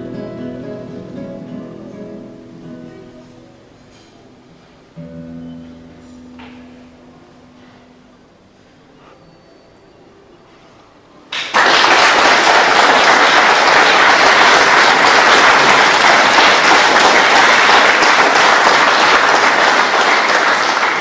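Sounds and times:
audience applauding: 11.3 - 21.0.

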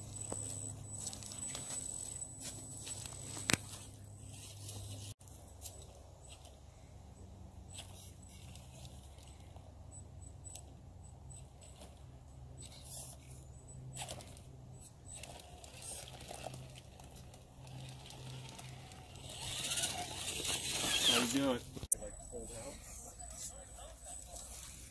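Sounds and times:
electric motor hum: 14.0 - 21.8
tyres scraping bark: 17.7 - 21.8.

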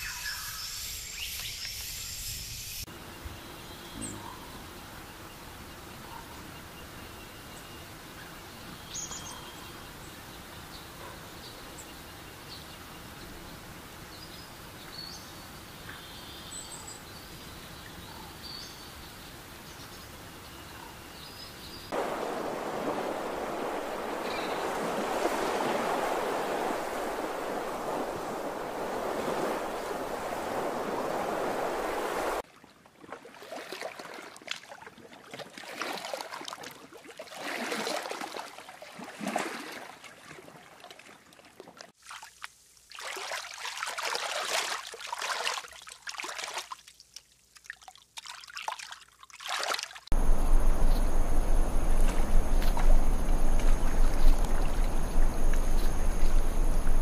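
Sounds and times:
lake surf washing: 21.9 - 32.4, 50.1 - 57.0
rushing water with low rumble: 21.9 - 47.0, 47.6 - 57.0
water lapping and sloshing: 21.9 - 57.0
faint high whine: 22.0 - 32.4, 50.2 - 57.0.

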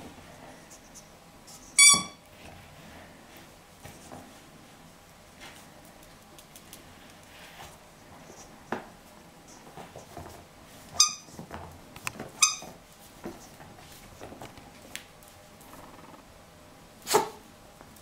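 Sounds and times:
rubber squeaky toy: 1.8 - 2.2, 11.0 - 11.3, 12.4 - 12.7.

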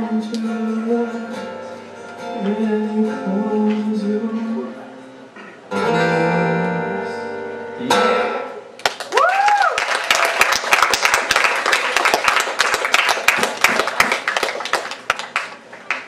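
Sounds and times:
audience clapping: 8.8 - 16.0
short cheer: 9.1 - 10.3.

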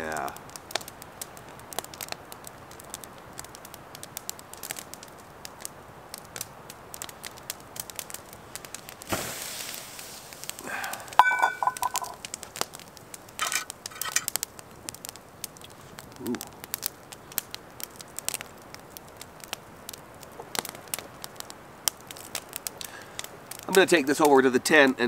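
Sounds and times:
campfire crackling and popping: 0.0 - 25.0
metal clink: 11.2 - 12.2, 13.4 - 14.3.

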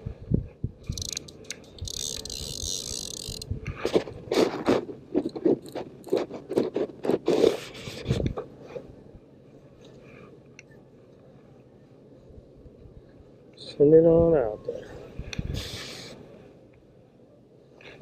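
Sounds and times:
hands scraping fishing reel: 0.9 - 8.0
short rasps: 15.4 - 16.2.

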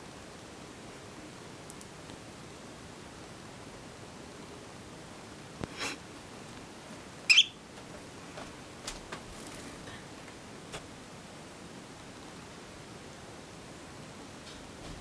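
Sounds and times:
faint steady hiss: 0.0 - 15.0
parrot chirp: 7.3 - 7.6.

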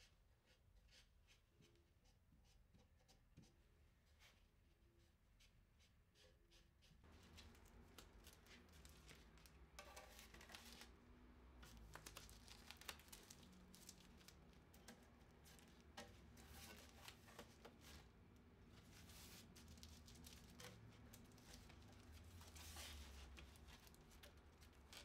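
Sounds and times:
rustling of prints: 7.0 - 25.0.

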